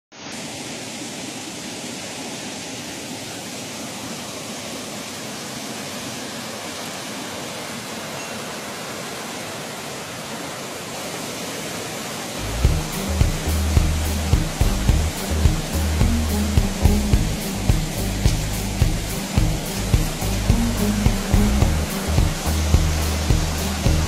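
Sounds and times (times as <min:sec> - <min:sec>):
river rapids rushing over rocks: 0:00.3 - 0:24.0
music with thumping beat: 0:12.6 - 0:24.0.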